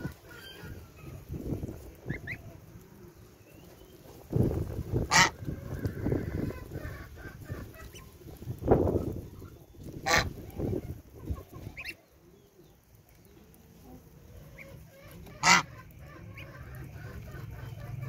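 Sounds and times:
gosling peeping: 0.0s - 12.8s, 13.9s - 18.0s
goose honking: 5.0s - 8.0s, 10.0s - 10.4s, 14.6s - 18.0s.

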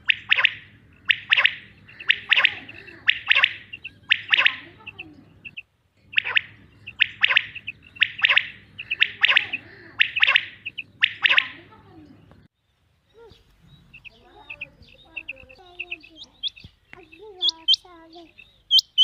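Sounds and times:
quail calling: 0.0s - 12.5s, 13.1s - 19.0s.

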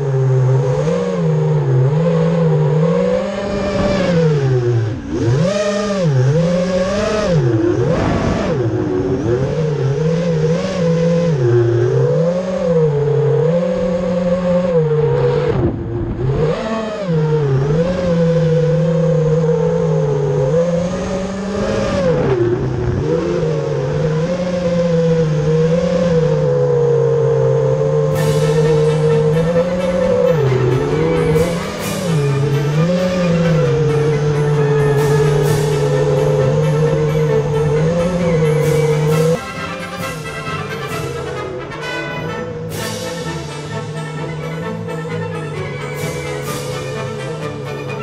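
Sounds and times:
drone motors whining: 0.0s - 48.0s.

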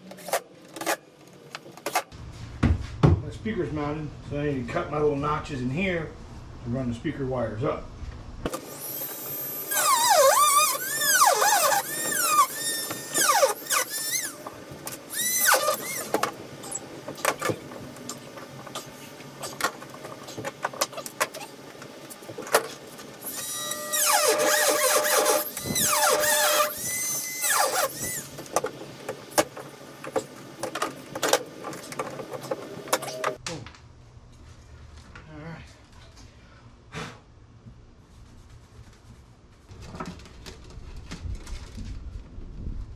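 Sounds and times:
tool squealing while cutting: 8.8s - 14.5s, 15.1s - 16.2s, 23.2s - 28.4s.

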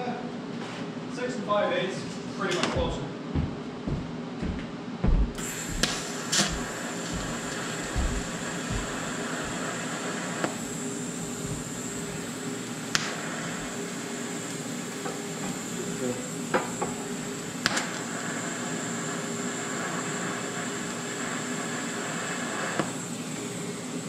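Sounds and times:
welding arc hiss: 5.4s - 24.0s.

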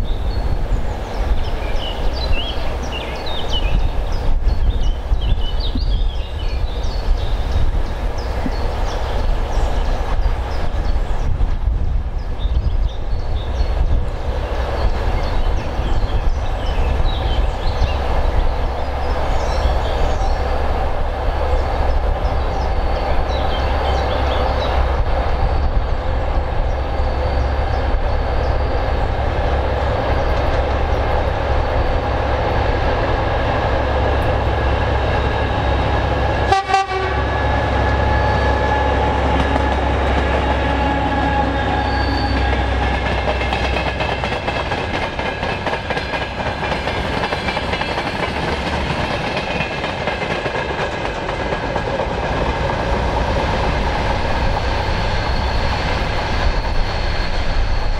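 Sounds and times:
diesel locomotive engine drone: 0.0s - 57.9s
freight wagons clattering on rails: 41.7s - 53.9s.

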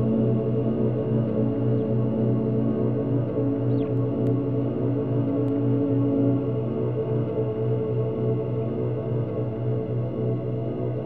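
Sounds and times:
ambient music with pulsing low note: 0.0s - 11.0s.

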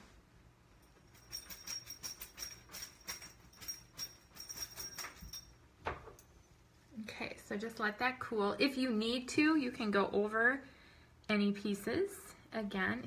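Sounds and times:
light clicking and jingling: 0.7s - 6.9s.

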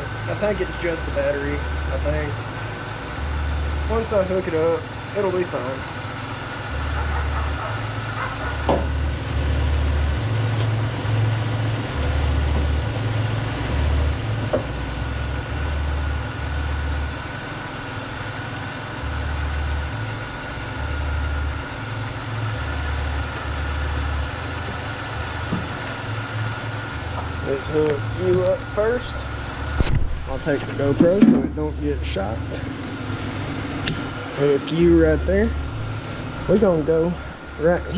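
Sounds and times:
car engine idling: 0.0s - 37.9s.

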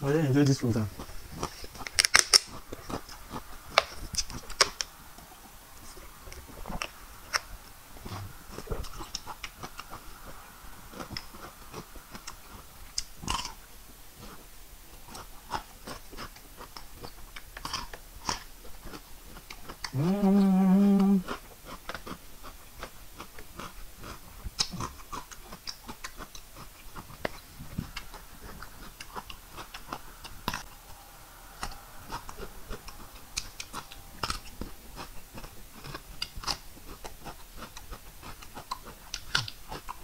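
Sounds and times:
closed-mouth hum: 0.0s - 40.0s
chewing cucumber crunches: 0.7s - 5.4s, 6.2s - 40.0s
mouth clicks: 15.0s - 40.0s.

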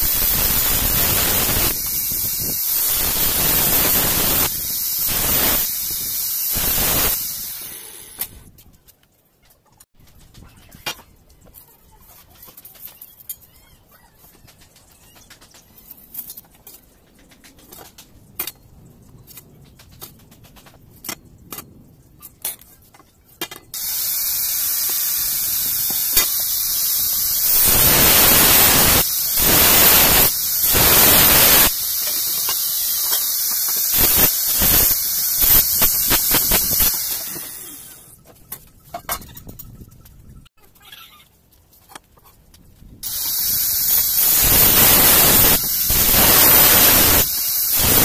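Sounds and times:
angle grinder cutting steel: 0.0s - 8.4s, 23.8s - 38.2s, 43.0s - 48.0s.

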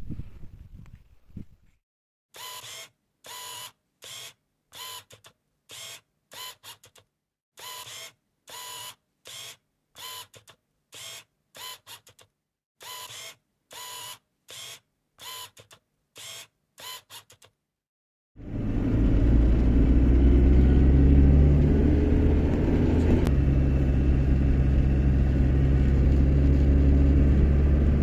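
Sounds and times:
mechanical clicking and whirring: 2.4s - 17.6s.

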